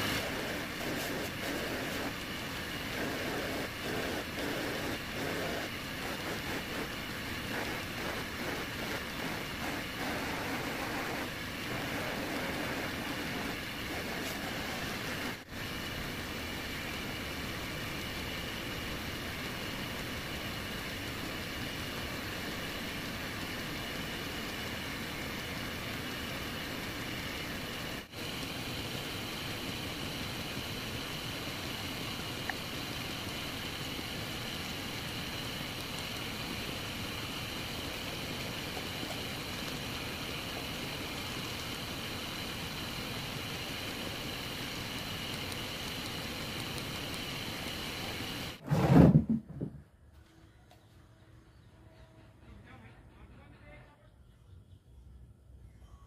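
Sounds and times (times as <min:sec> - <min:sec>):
lathe wheel whirring against wood: 0:00.0 - 0:15.5.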